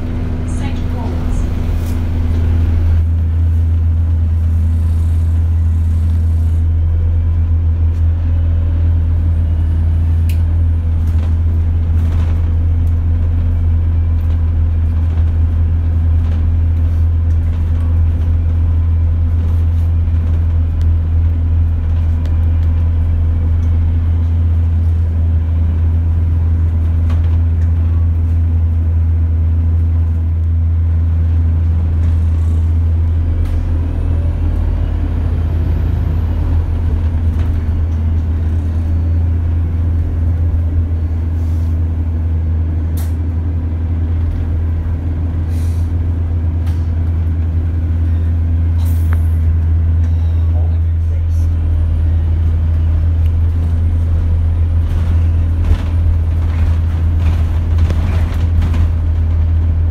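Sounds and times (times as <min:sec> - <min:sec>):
bus engine drone: 0:00.0 - 0:59.9
faint rattles and clicks: 0:54.8 - 0:59.9.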